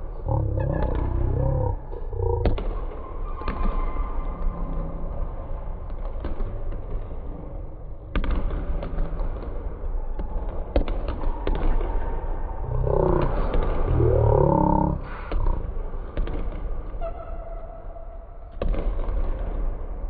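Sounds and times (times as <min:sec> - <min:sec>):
steady low rumble: 0:00.0 - 0:02.6.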